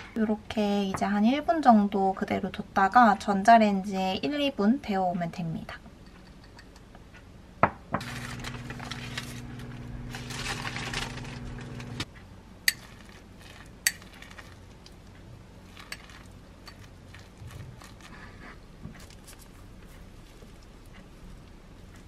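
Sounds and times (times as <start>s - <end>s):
microwave humming: 8.0s - 12.2s.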